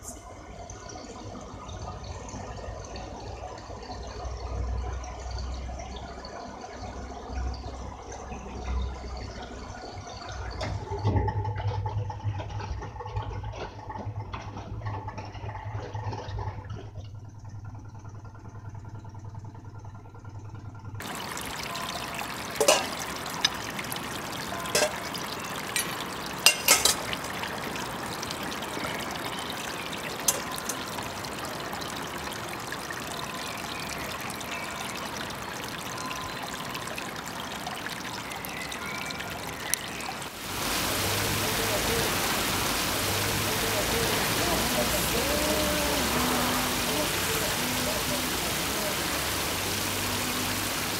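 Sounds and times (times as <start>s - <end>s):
stream trickling: 0.0s - 17.0s, 21.0s - 50.9s
metal bowl clinking: 21.6s - 27.6s, 30.2s - 31.0s.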